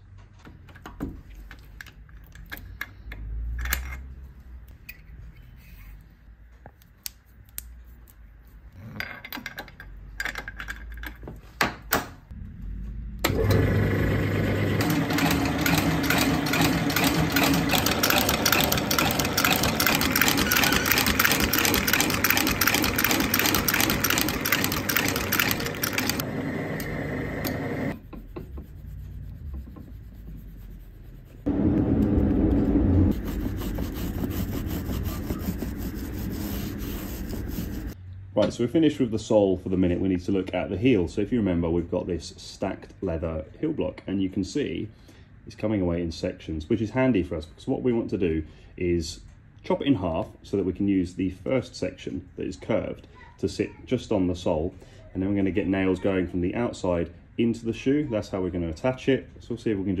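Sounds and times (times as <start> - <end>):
stitching machine needle strokes: 13.3 - 28.0, 33.1 - 38.0
handling clicks and knocks: 16.0 - 26.2.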